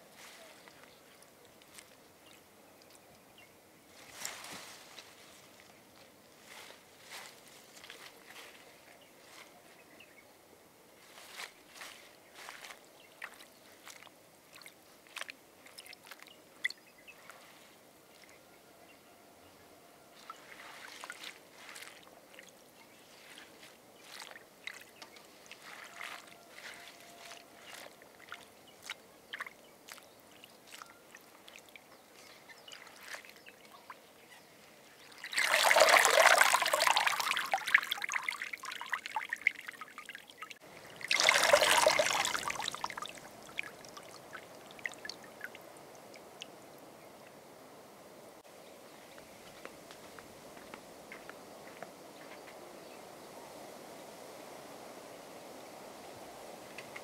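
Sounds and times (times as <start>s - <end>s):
water dripping: 13.2s - 16.9s, 24.0s - 32.0s, 35.0s - 46.8s
hands swishing in water: 20.2s - 22.5s, 23.1s - 30.0s, 35.1s - 40.2s, 40.9s - 45.6s
water pouring into bowl: 35.1s - 45.6s.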